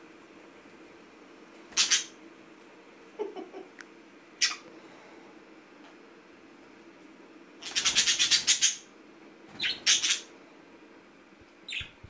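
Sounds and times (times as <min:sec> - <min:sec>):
budgerigar chirp: 0:01.8 - 0:02.1, 0:07.6 - 0:08.9, 0:09.6 - 0:10.3, 0:11.7 - 0:12.0
budgerigar squawking: 0:01.8 - 0:02.1, 0:09.6 - 0:10.3.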